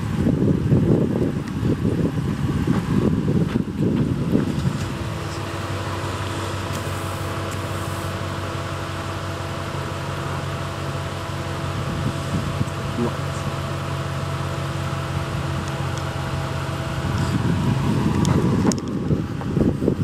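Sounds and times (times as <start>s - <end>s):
truck engine idling: 0.0s - 20.0s.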